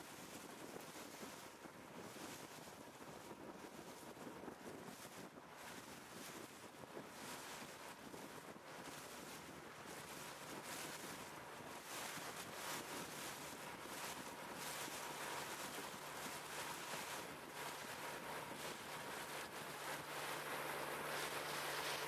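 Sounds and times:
wind buffeting microphone: 0.1s - 22.0s
water rushing past boat: 9.4s - 22.0s.

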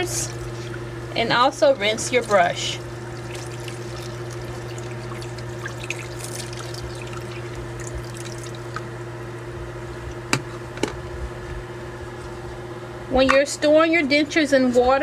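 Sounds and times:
tap water running into sink: 1.9s - 8.9s.

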